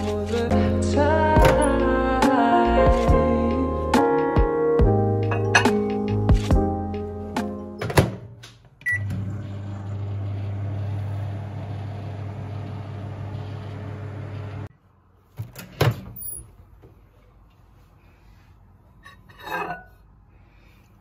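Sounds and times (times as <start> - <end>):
microwave beep: 8.8 - 10.9
microwave humming: 8.8 - 14.7.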